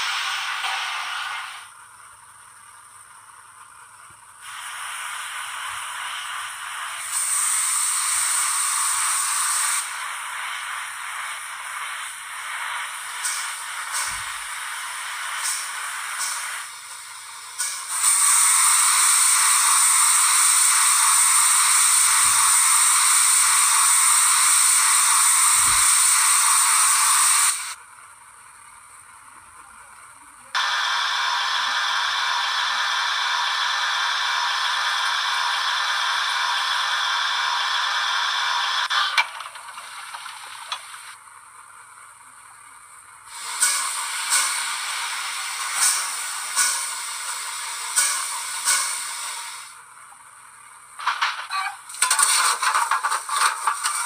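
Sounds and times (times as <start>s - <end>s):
safety valves hissing: 4.4s - 27.8s, 30.6s - 41.2s, 43.3s - 49.8s.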